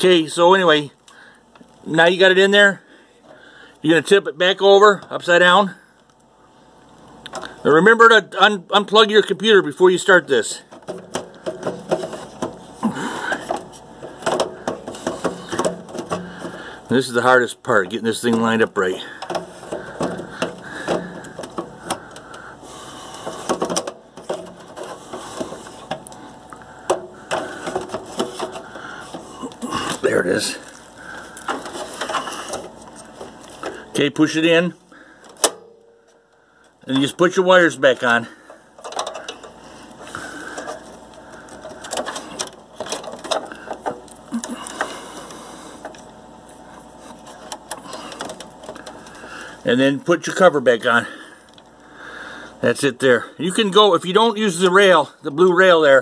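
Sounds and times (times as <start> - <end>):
plastic caddy knocking against metal: 10.7 - 12.6, 13.4 - 16.6, 19.2 - 22.2, 23.2 - 26.1
cable connectors clicking: 38.8 - 39.6, 47.3 - 49.3.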